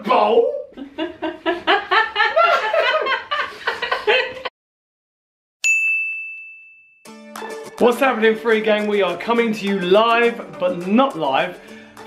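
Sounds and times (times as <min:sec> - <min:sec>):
people talking: 0:00.0 - 0:00.7, 0:07.8 - 0:11.6
man and woman laughing: 0:00.7 - 0:04.5
bright ding ringing: 0:05.6 - 0:07.1.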